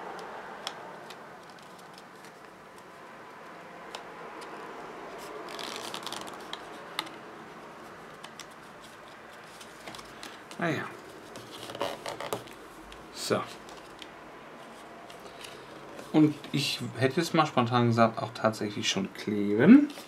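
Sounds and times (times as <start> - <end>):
paper rustling: 5.1 - 7.2, 7.8 - 16.9, 19.8 - 20.0.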